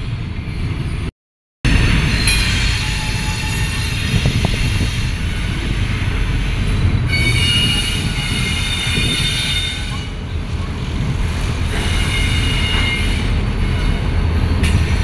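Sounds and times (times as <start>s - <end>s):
wheels squealing: 2.1s - 10.2s.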